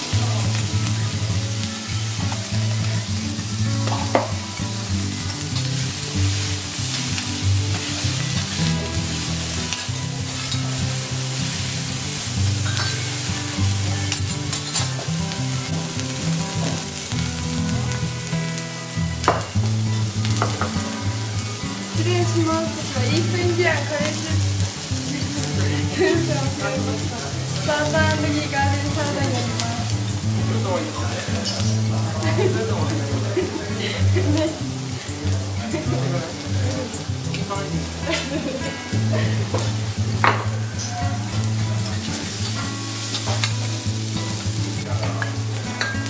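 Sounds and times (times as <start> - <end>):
vegetables sizzling on a griddle: 0.0 - 46.0
spatulas stirring and tossing: 5.3 - 18.6
spatula clinking on griddle: 6.8 - 15.3, 41.9 - 43.7, 45.1 - 46.0.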